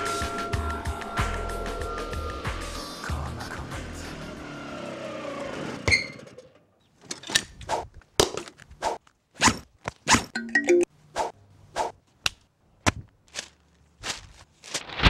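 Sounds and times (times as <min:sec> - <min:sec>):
motor scooter engine slowing: 0:00.6 - 0:06.8
heavy boot steps on dirt: 0:12.9 - 0:15.0.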